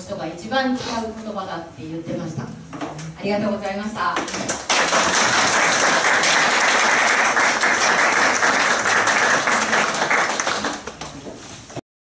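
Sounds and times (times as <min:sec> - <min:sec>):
audience applauding: 0:04.5 - 0:11.2.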